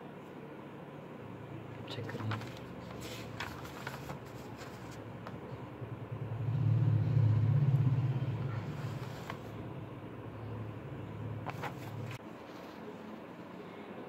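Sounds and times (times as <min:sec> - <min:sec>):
paper pages rustling: 0:02.0 - 0:05.4, 0:08.7 - 0:09.6, 0:11.4 - 0:13.0
passing motor vehicle rumble: 0:05.4 - 0:12.2.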